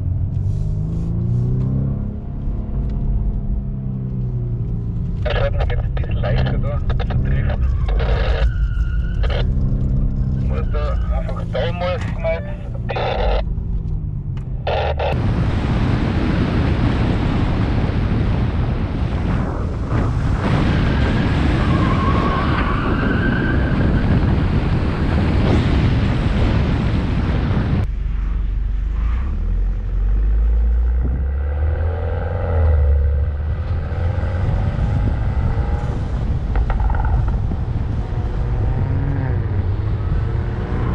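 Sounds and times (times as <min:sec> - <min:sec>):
car engine revving: 0:00.0 - 0:15.9, 0:27.9 - 0:40.9
wind and road noise: 0:00.0 - 0:40.9.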